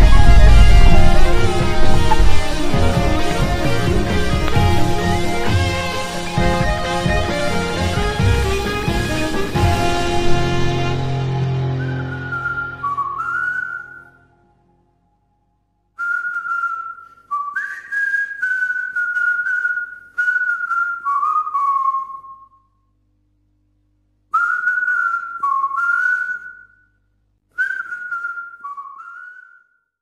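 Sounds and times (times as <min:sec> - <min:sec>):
person whistling a tune: 0:11.6 - 0:14.2, 0:16.0 - 0:22.6, 0:24.3 - 0:26.8, 0:27.6 - 0:29.8.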